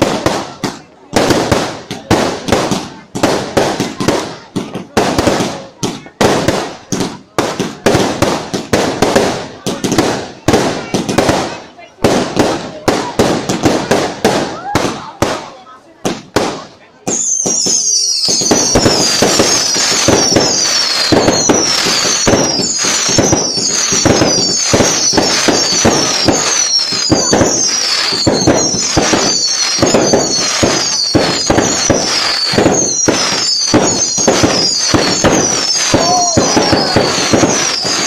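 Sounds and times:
fireworks bangs and crackling: 0:00.0 - 0:38.0
fireworks whistles: 0:00.0 - 0:38.0.

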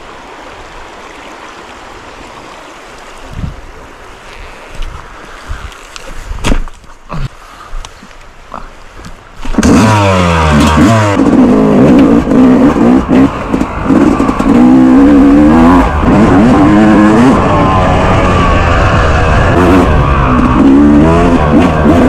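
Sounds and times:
dirt bike engine revving: 0:09.5 - 0:22.0.

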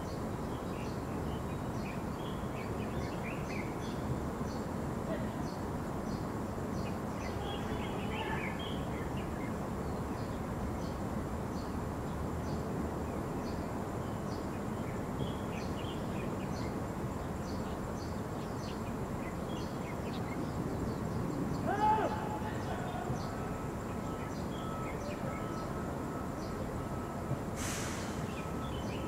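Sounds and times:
low outdoor background noise: 0:00.0 - 0:29.0.

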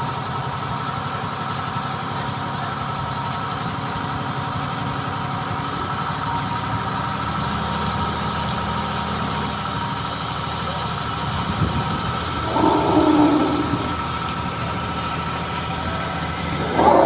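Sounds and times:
crane engine running: 0:00.0 - 0:17.0
thin steady whine: 0:10.7 - 0:17.0.

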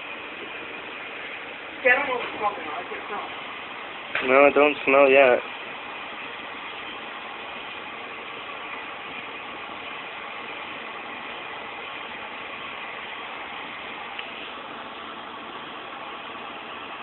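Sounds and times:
steady background noise: 0:00.0 - 0:17.0.

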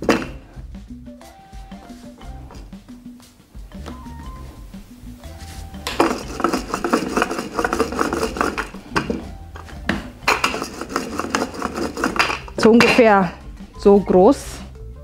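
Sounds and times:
rolling pin clacking on worktop: 0:05.9 - 0:09.2, 0:09.9 - 0:13.0.

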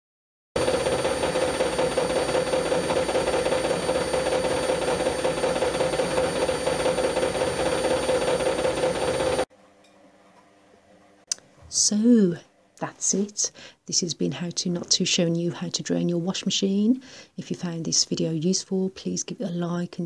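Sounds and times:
washing machine humming and whirring: 0:00.6 - 0:09.5.

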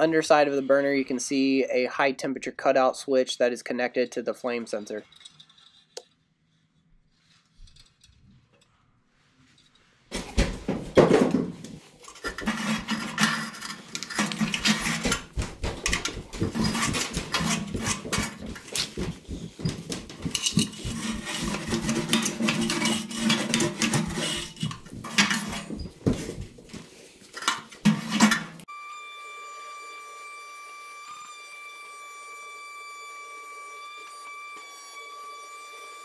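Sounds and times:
brush scrubbing metal: 0:12.0 - 0:15.0, 0:20.2 - 0:25.8.

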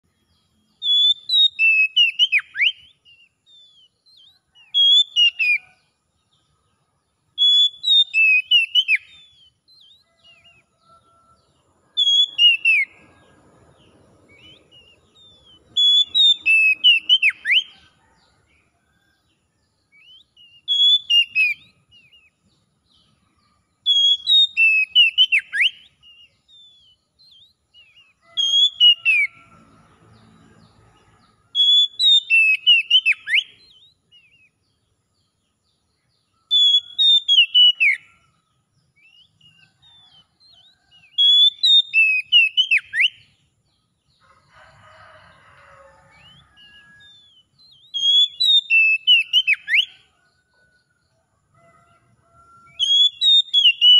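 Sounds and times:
bird singing whistled notes: 0:00.2 - 0:06.5, 0:07.3 - 0:11.2, 0:11.8 - 0:17.9, 0:19.7 - 0:29.4, 0:31.5 - 0:43.4, 0:46.1 - 0:50.1, 0:52.6 - 0:53.9.

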